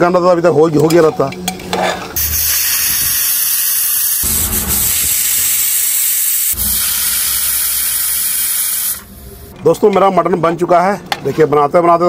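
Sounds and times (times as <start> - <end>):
pressure cooker whistle hissing: 2.2 - 9.5.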